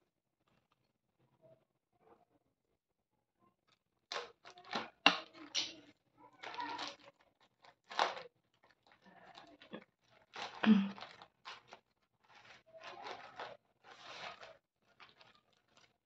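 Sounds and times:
packaging tearing and rustling: 6.3s - 16.0s.

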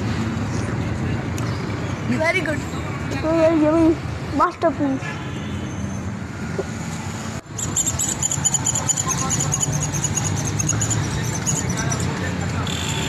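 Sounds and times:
street background noise: 0.0s - 13.0s
short high-pitched chirps: 7.6s - 11.7s.

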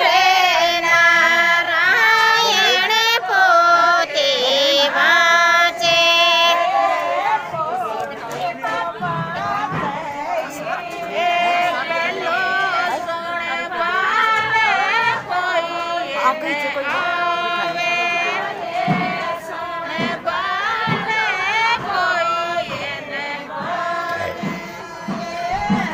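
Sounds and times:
women singing folk song: 0.0s - 25.9s
low thumps: 18.8s - 25.9s.

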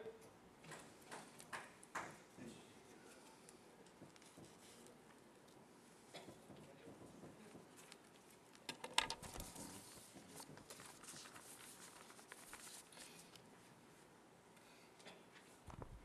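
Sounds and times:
paper rustling and shuffling: 3.1s - 5.6s, 7.2s - 14.0s, 15.3s - 16.0s.

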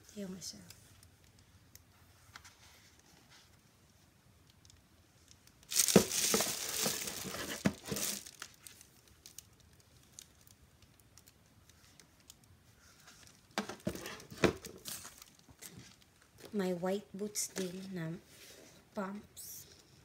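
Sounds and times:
packaging crinkling and rustling: 5.4s - 16.5s.

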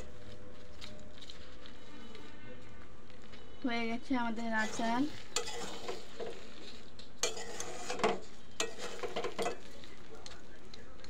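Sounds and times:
faint sizzle: 0.0s - 11.0s
spoon scraping metal pan: 4.3s - 9.9s.

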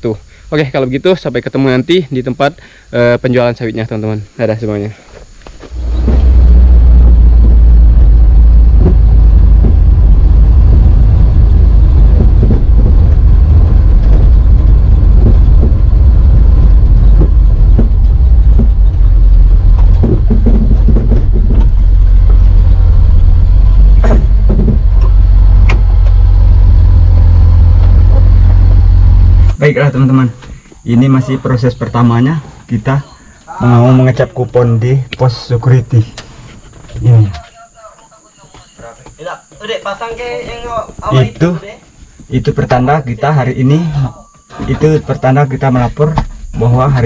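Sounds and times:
car engine and road noise: 5.6s - 29.6s
knocks and bumps: 5.6s - 29.6s.

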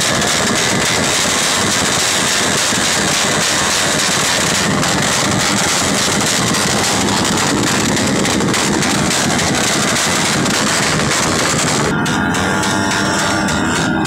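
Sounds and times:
motorcycle engines revving hard: 0.0s - 14.0s.

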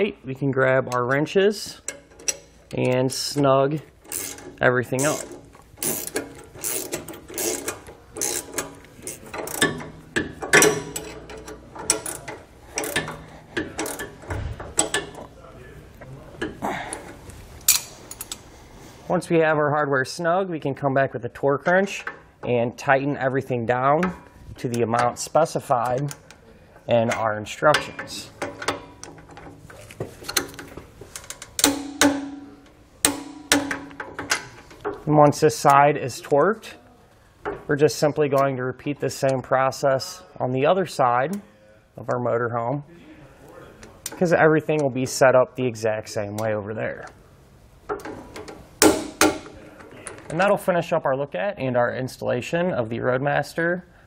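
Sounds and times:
wrenches clinking on metal: 1.8s - 15.3s, 26.9s - 35.7s, 47.9s - 50.4s
wrench ratcheting clicks: 4.0s - 9.8s, 10.5s - 14.2s.

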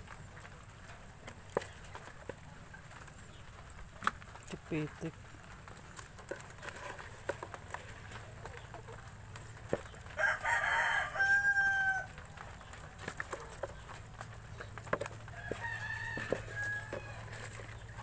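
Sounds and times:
hands sorting in plastic basin: 0.0s - 18.0s
rooster crowing: 10.2s - 12.2s, 15.3s - 17.6s.

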